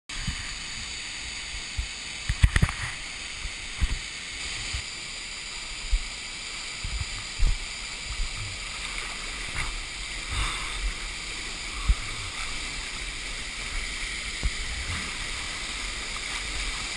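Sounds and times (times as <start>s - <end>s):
waterfall rushing into pool: 0.1s - 16.9s
dull low thumps and knocks: 6.8s - 8.6s, 14.4s - 15.2s.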